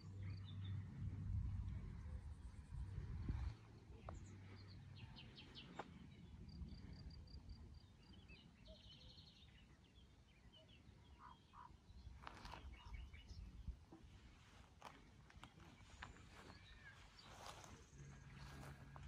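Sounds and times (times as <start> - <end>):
steady low rumble: 0.0 - 8.0
birds chirping: 1.7 - 19.0.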